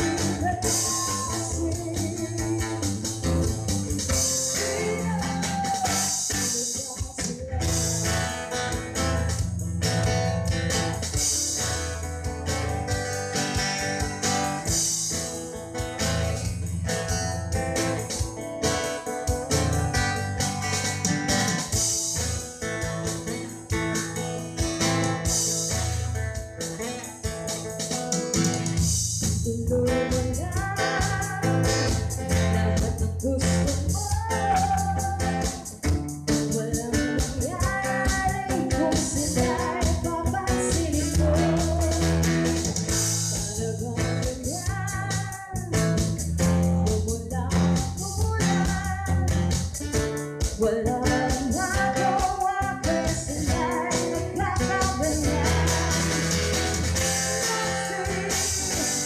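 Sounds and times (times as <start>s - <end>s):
low bass notes: 0.0s - 5.8s
woman singing: 0.0s - 9.3s, 18.6s - 21.8s, 29.2s - 59.0s
acoustic guitar: 0.0s - 59.0s.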